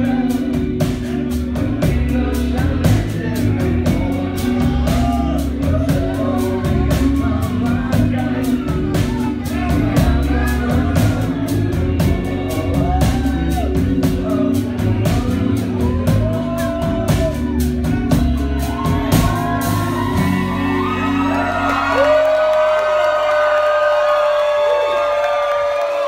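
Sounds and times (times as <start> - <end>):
voices singing and shouting: 0.0 - 22.3
drums beating: 0.0 - 26.0
heavy bass: 0.0 - 26.0
live band playing: 0.0 - 26.0.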